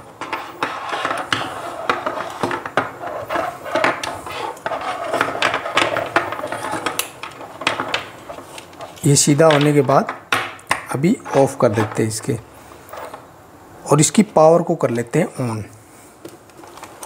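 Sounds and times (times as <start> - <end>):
wires dragging: 0.0 - 9.2.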